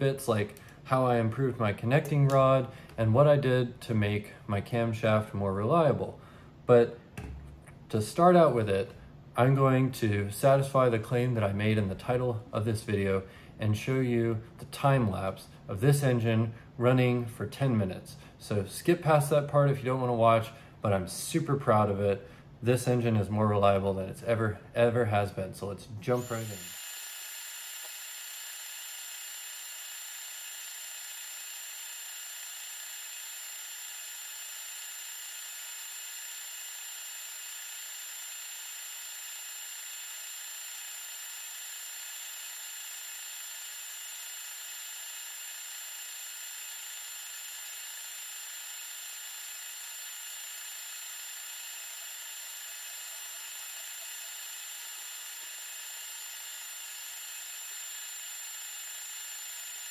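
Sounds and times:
vacuum engine whirring: 0:26.1 - 0:59.9.

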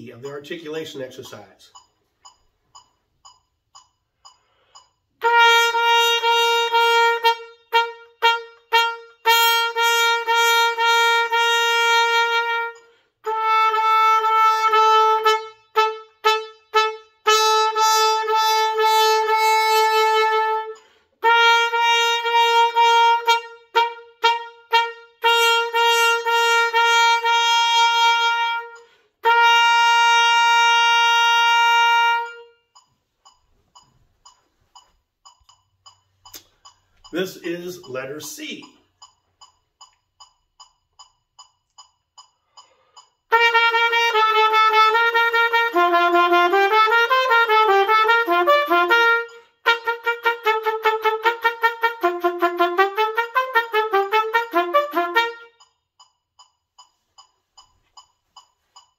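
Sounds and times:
trumpet playing single pitch: 0:05.2 - 0:32.6, 0:43.3 - 0:55.5.

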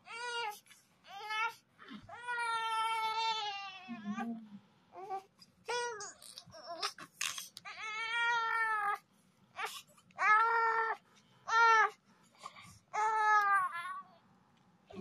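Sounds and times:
baby crying: 0:00.0 - 0:04.3, 0:07.7 - 0:09.0, 0:09.6 - 0:12.0, 0:12.9 - 0:14.2.

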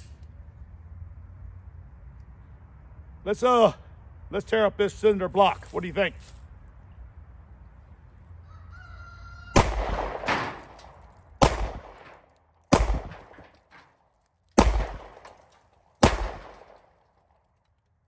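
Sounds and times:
pistol shots: 0:09.5 - 0:13.9, 0:14.6 - 0:17.4.

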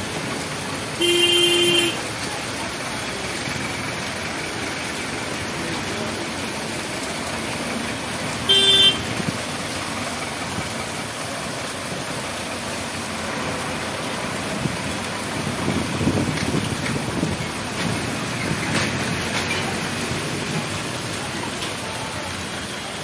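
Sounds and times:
heavy rain: 0:00.0 - 0:23.0
wet-road traffic: 0:00.0 - 0:23.0
vehicle horn toot: 0:01.0 - 0:02.0, 0:08.5 - 0:09.1.

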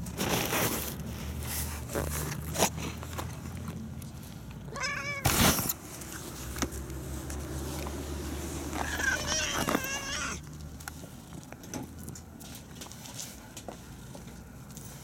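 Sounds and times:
cat meowing: 0:04.7 - 0:05.3, 0:08.8 - 0:10.4.

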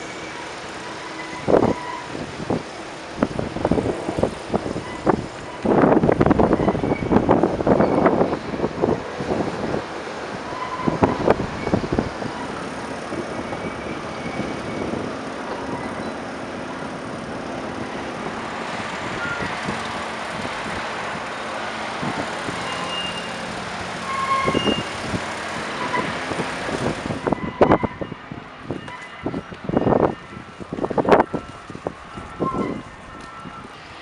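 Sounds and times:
excavator diesel engine running: 0:00.0 - 0:34.0.

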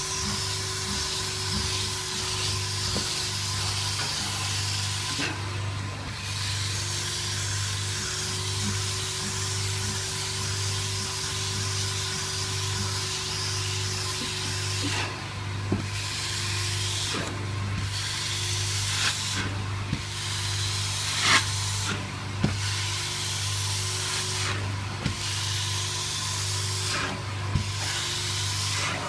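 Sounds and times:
cleaning machine humming: 0:00.0 - 0:29.0
hand tool hissing: 0:12.7 - 0:29.0.

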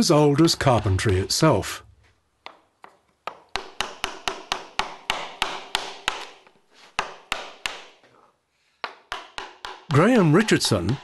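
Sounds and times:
hammer striking chisel into wood: 0:02.4 - 0:08.0, 0:08.8 - 0:11.0.

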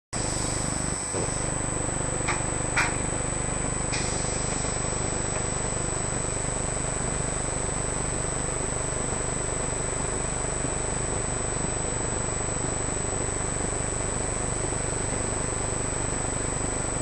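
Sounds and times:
mechanical hum with whine: 0:00.2 - 0:17.0.

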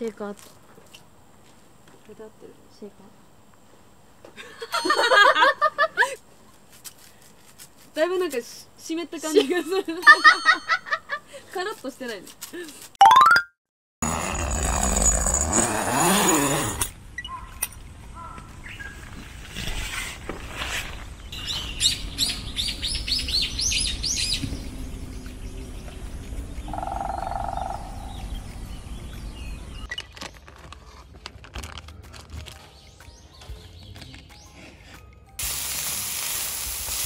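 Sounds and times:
birds chirping: 0:17.2 - 0:19.2, 0:21.3 - 0:30.2
handling noise and rustling: 0:29.9 - 0:34.3.

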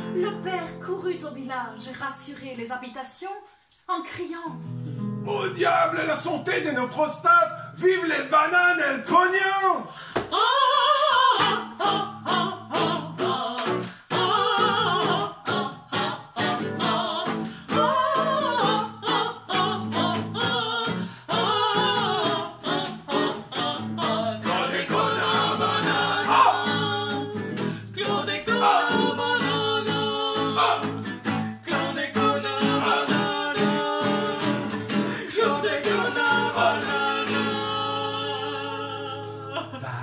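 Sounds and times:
strummed acoustic guitar: 0:04.6 - 0:07.9, 0:11.4 - 0:38.8
voices singing wordless refrain: 0:05.3 - 0:07.0, 0:10.3 - 0:40.0.

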